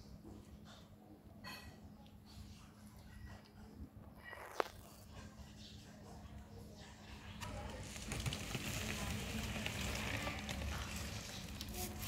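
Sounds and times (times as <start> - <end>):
crackling rustle of toy fur on turf: 7.4 - 12.0.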